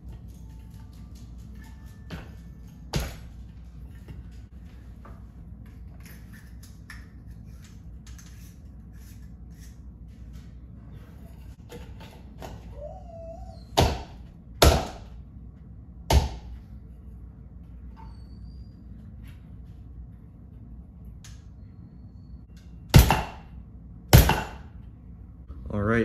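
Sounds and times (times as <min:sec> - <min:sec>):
brief squeak: 0:18.0 - 0:19.0.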